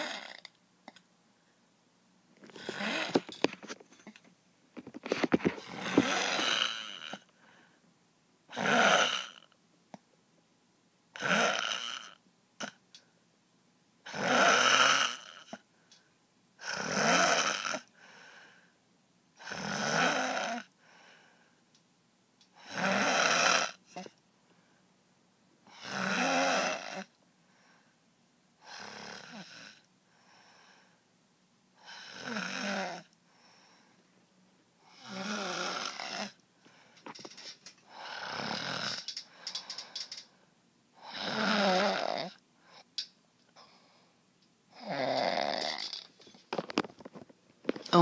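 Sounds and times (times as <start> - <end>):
person snoring loudly: 0.0 - 0.5, 2.5 - 3.3, 5.5 - 7.3, 8.5 - 9.5, 11.2 - 12.8, 14.1 - 15.6, 16.6 - 17.9, 19.4 - 20.7, 22.6 - 24.1, 25.7 - 27.1, 28.6 - 29.8, 31.8 - 33.1, 34.9 - 36.4, 37.9 - 39.1, 41.0 - 42.4, 44.8 - 46.0
faint breaths: 4.8 - 8.0, 17.9 - 18.8, 20.8 - 21.7, 27.4 - 28.1, 30.0 - 31.1, 33.2 - 34.2, 34.8 - 41.4, 42.3 - 44.9.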